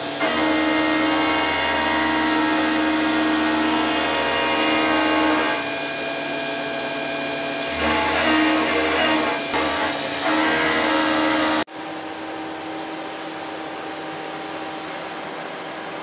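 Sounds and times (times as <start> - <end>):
milling machine whine: 0.0 - 11.7.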